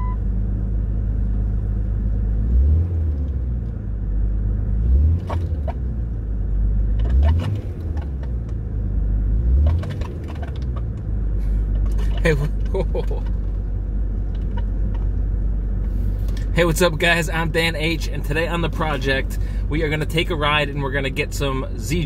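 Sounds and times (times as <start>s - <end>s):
engine revving blips: 0.0s - 0.3s, 4.7s - 6.2s, 6.8s - 11.1s
car engine idling: 0.0s - 22.0s.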